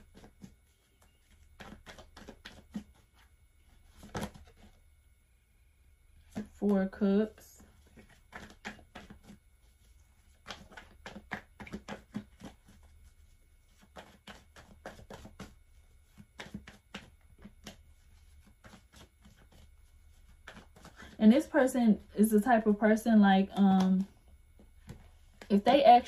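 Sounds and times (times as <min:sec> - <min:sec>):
cards shuffling: 0:00.0 - 0:04.8, 0:07.6 - 0:21.2.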